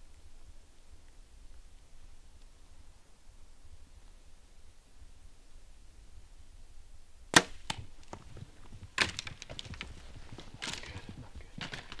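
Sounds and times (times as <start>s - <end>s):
dead branches snapping: 9.0s - 9.9s.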